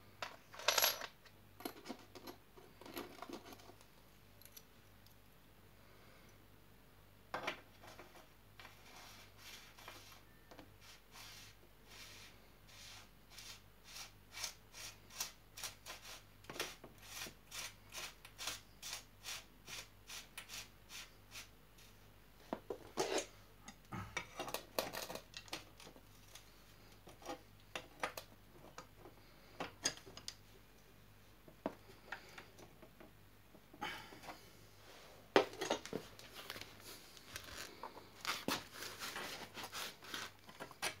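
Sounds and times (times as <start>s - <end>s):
tools clinking and clattering: 0.2s - 3.7s.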